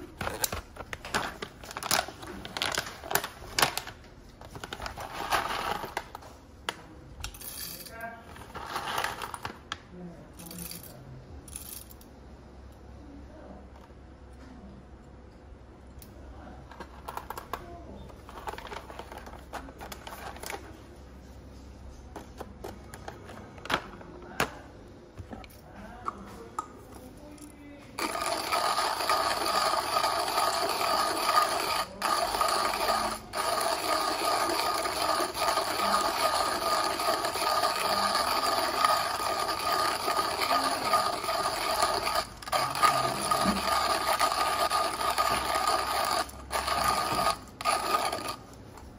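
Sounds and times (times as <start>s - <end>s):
coffee beans rattling: 28.0s - 48.5s
hand grinder grinding beans: 28.0s - 48.6s.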